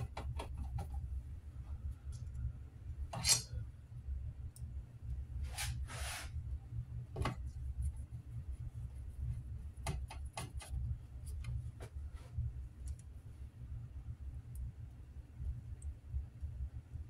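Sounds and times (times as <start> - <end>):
low steady hum: 0.0 - 17.0
screwdriver clicking on sheet metal: 3.1 - 3.5.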